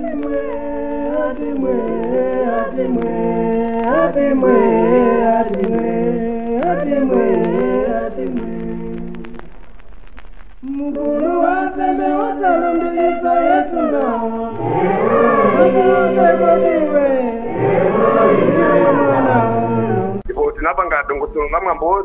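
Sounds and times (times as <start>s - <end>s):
voices singing in harmony: 0.0s - 9.5s, 10.6s - 20.3s.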